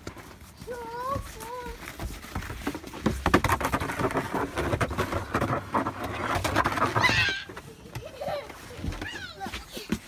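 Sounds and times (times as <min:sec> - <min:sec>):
footsteps on wooden deck: 0:00.0 - 0:03.6
plastic sled handled: 0:00.0 - 0:10.0.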